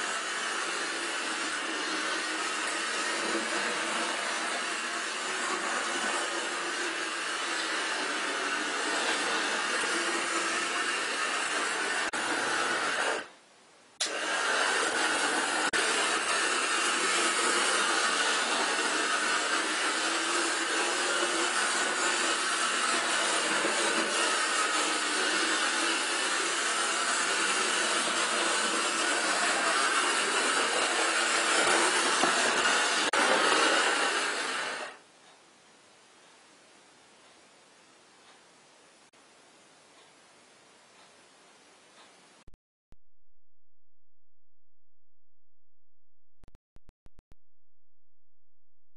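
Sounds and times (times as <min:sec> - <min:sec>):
model train running with hiss: 0:00.0 - 0:13.3, 0:14.0 - 0:35.0.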